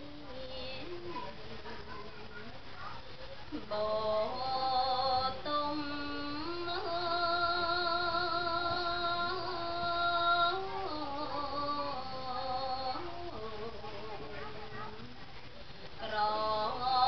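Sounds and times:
woman chanting into a microphone: 0:03.6 - 0:14.8, 0:16.0 - 0:17.0.

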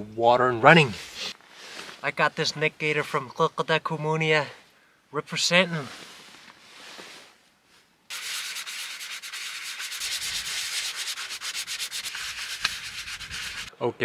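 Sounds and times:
sandpaper rasping on fibreglass: 0:08.1 - 0:13.7.

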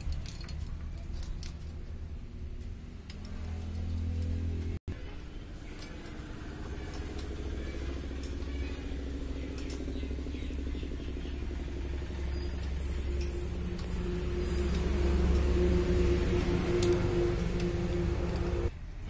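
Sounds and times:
motorcycle engine idling: 0:04.9 - 0:18.7.

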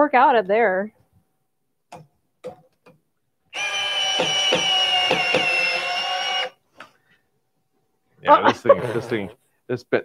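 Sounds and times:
cordless screwdriver whining: 0:03.5 - 0:06.6
screw knocking into wood: 0:04.0 - 0:05.9.

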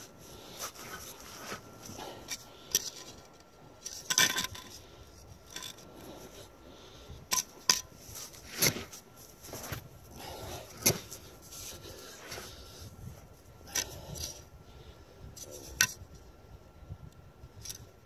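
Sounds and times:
metal level set on sand: 0:00.6 - 0:04.8.

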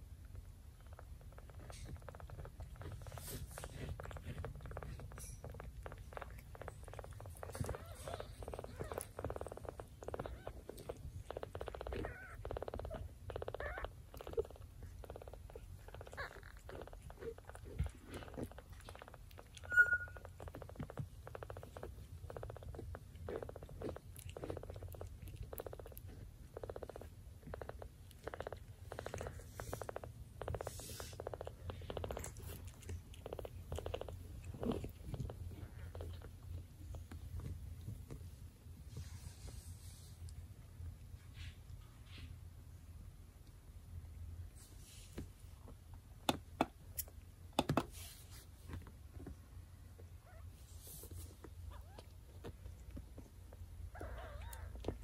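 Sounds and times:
cat purring: 0:00.0 - 0:41.9, 0:47.9 - 0:55.0
high squeak: 0:19.6 - 0:20.3.

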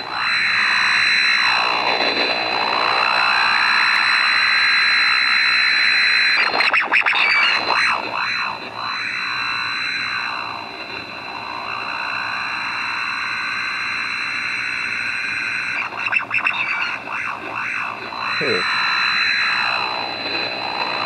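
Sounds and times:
radio noise hissing whine: 0:00.0 - 0:21.0
thin high tone: 0:18.1 - 0:19.0.

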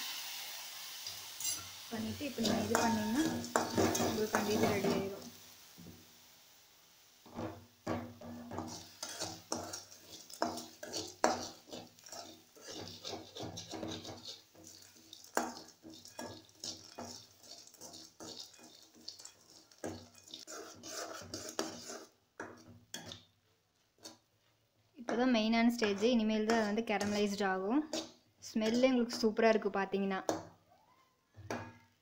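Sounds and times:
metal spatula scraping a pan: 0:01.0 - 0:05.4, 0:07.3 - 0:23.2, 0:25.1 - 0:29.4.

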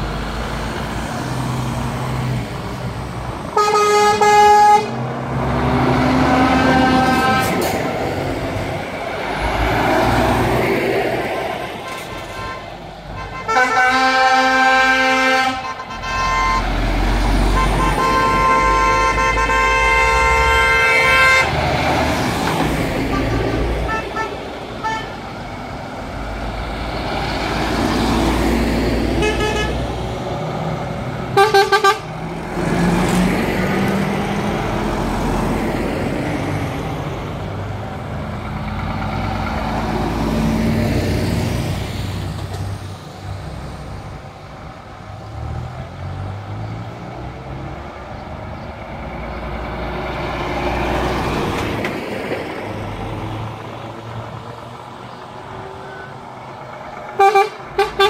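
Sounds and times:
lorries driving past: 0:00.0 - 0:58.0
truck horn blasts: 0:03.5 - 0:05.1, 0:06.1 - 0:07.8, 0:11.8 - 0:16.8, 0:17.5 - 0:21.6, 0:23.0 - 0:25.2, 0:29.1 - 0:30.0, 0:31.4 - 0:32.1, 0:55.6 - 0:56.3, 0:57.1 - 0:58.0.

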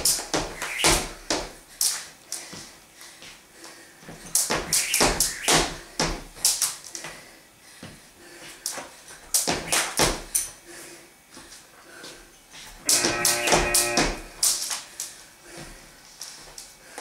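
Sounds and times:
jump rope slapping wooden floor: 0:00.0 - 0:02.1, 0:04.3 - 0:06.8, 0:08.7 - 0:10.5, 0:12.9 - 0:14.8
sneakers landing: 0:09.4 - 0:10.3.

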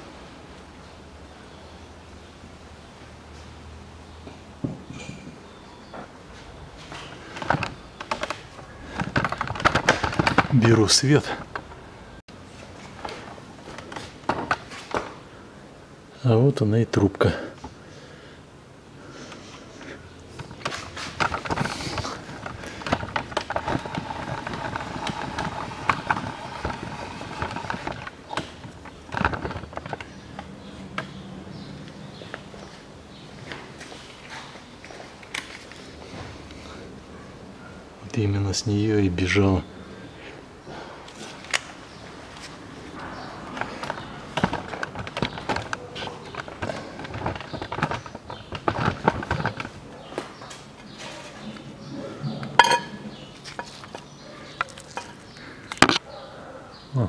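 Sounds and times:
hand tools clicking and knocking on metal: 0:07.3 - 0:11.8, 0:20.3 - 0:31.1, 0:52.5 - 0:56.0.

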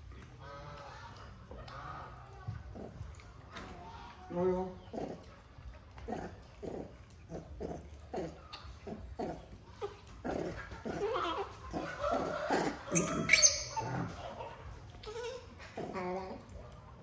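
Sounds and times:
baby monkey whimpering: 0:09.2 - 0:14.4
high-pitched monkey squeak: 0:12.9 - 0:14.1.

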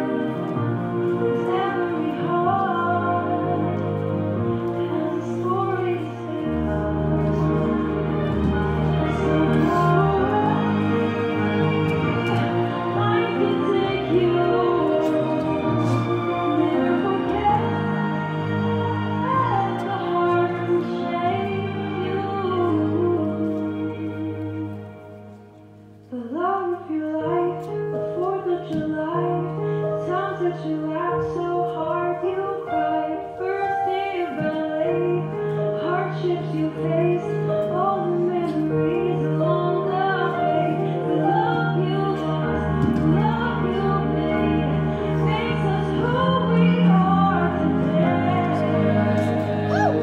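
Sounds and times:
woman singing: 0:00.0 - 0:25.0, 0:26.1 - 0:50.0
sustained instrumental backing: 0:00.0 - 0:26.2, 0:33.0 - 0:50.0.

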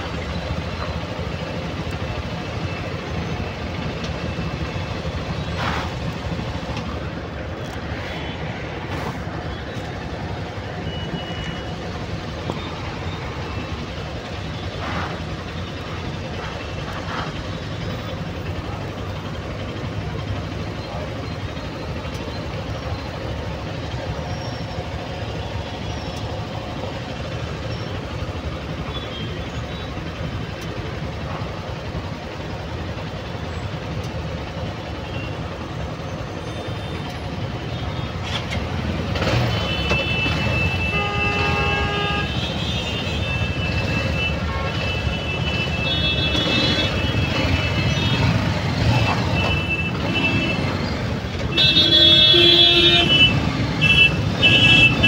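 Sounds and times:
engines idling: 0:00.0 - 0:55.0
vehicles moving off: 0:00.0 - 0:55.0
vehicle horns honking: 0:39.2 - 0:55.0.

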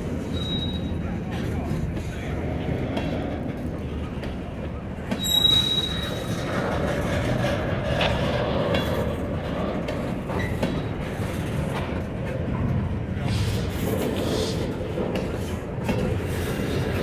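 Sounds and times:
train wheels rumbling on rail: 0:00.0 - 0:17.0
high wheel squeal: 0:00.3 - 0:01.0, 0:05.1 - 0:06.5.

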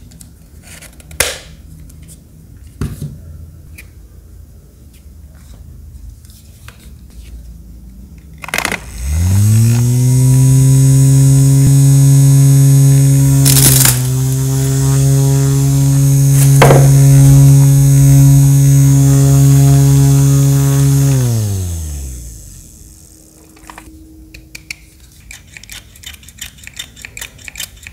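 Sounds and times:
small fan motor humming: 0:08.7 - 0:23.9.

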